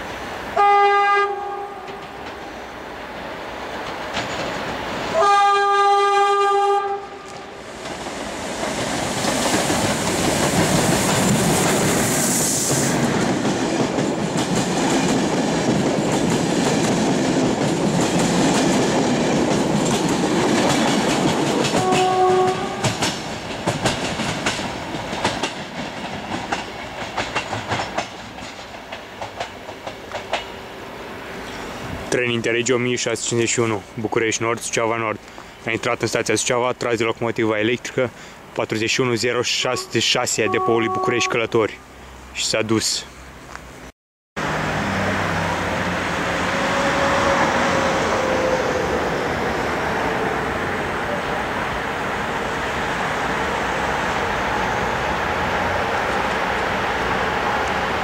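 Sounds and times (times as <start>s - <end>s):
train coaches rumbling past: 0.0s - 58.0s
locomotive horn blasts: 0.6s - 1.9s, 5.1s - 7.5s, 21.8s - 22.9s, 39.7s - 41.5s, 46.5s - 48.6s
wheels clacking over rail joints: 1.8s - 5.2s, 7.3s - 30.6s.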